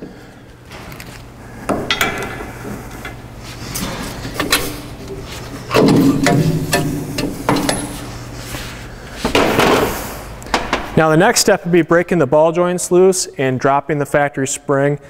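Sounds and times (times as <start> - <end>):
steady low hum: 0.0 - 14.0
wrench clinking on metal: 5.8 - 8.1.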